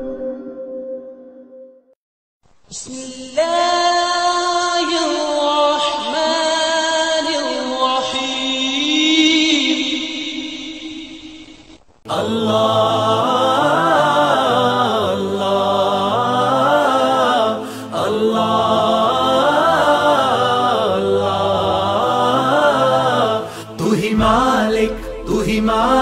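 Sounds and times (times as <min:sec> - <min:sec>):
layered voices singing: 0:12.1 - 0:26.0.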